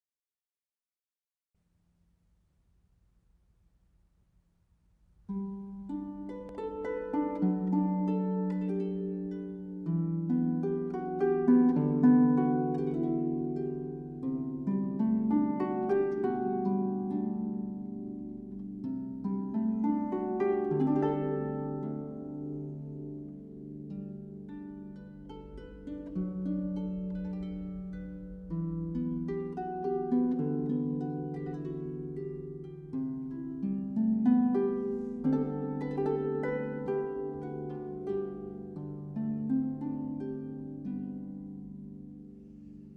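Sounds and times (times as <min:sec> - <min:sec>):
harp playing: 0:05.3 - 0:42.9.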